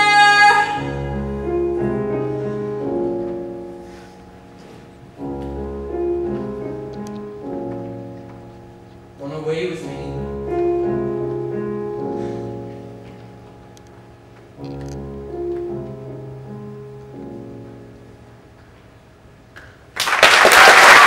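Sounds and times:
piano chords over bass notes: 0:00.0 - 0:19.5
audience applause: 0:19.9 - 0:21.0.

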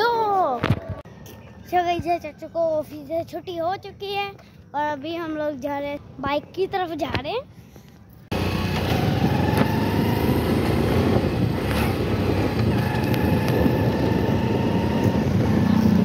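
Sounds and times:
motorcycle engine running: 0:08.3 - 0:16.0.

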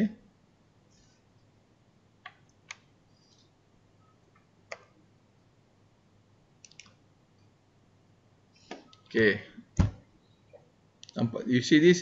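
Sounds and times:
computer mouse clicks: 0:02.2 - 0:03.5, 0:04.3 - 0:05.0, 0:06.6 - 0:07.0.

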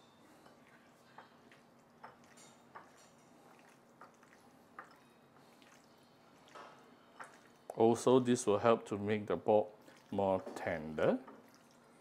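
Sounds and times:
hand kneading meat squelches: 0:00.3 - 0:08.4.

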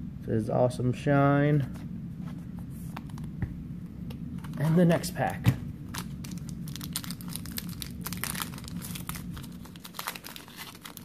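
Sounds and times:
foil wrapper crinkling and tearing: 0:05.9 - 0:11.0.

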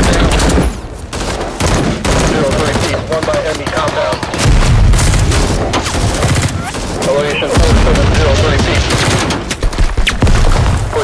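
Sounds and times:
rapid rifle and machine gun fire: 0:00.0 - 0:11.0.

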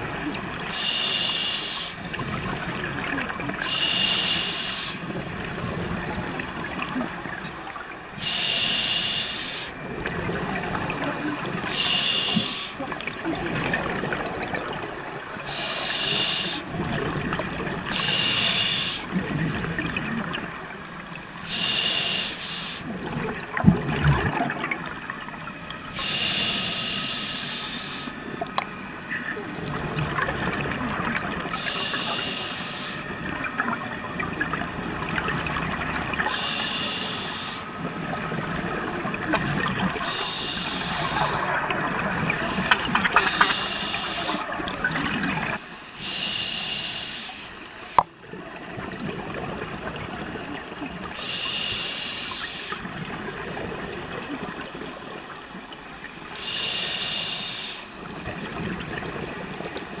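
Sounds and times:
exhaled bubbles gurgling underwater: 0:00.0 - 1:00.0
regulator hiss: 0:00.6 - 0:02.7, 0:03.6 - 0:05.0, 0:08.2 - 0:12.8, 0:15.5 - 0:16.7, 0:17.9 - 0:19.2, 0:20.3 - 0:22.9, 0:26.0 - 0:29.3, 0:31.5 - 0:33.2, 0:36.2 - 0:37.8, 0:39.3 - 0:41.5, 0:42.1 - 0:48.0, 0:51.1 - 0:52.9, 0:56.3 - 0:58.1.

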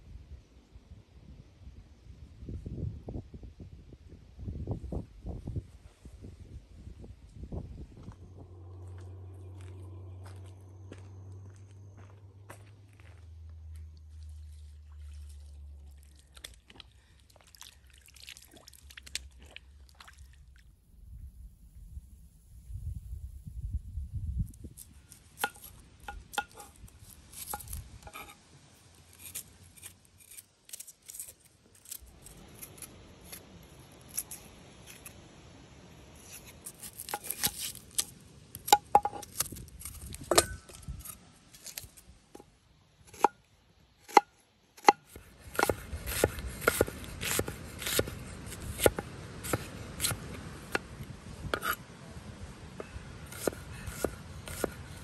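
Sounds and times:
knife chopping on cutting board: 0:44.8 - 0:48.1, 0:53.3 - 0:54.8.

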